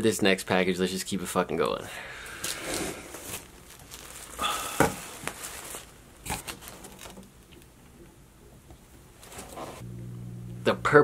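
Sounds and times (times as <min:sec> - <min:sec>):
plastic bag rustling: 0:02.4 - 0:07.3, 0:09.2 - 0:09.8.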